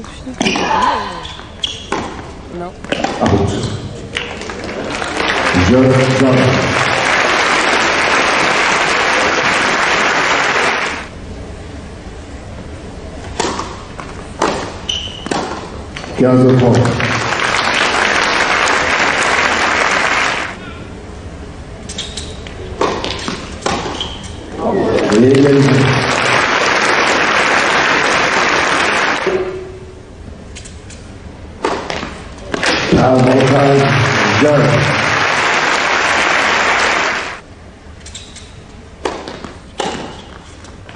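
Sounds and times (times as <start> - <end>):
high squeak: 0.4 - 2.0, 14.8 - 15.3
audience applause: 4.2 - 11.1, 16.5 - 20.6, 24.9 - 29.3, 32.7 - 37.4.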